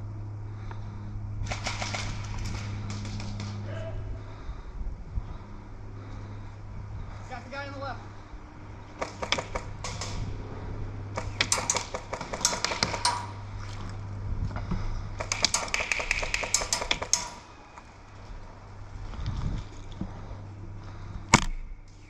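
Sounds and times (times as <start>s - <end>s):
airsoft guns firing: 1.5s - 3.6s, 9.0s - 10.3s, 11.1s - 13.4s, 15.2s - 17.6s.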